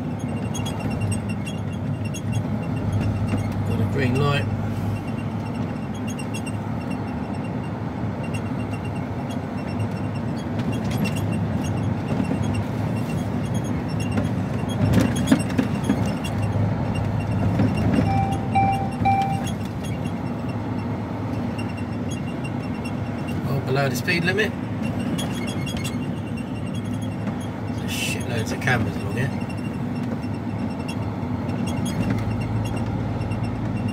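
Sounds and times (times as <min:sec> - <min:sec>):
truck engine and road noise: 0:00.0 - 0:33.9
short electronic beeps: 0:18.0 - 0:20.0.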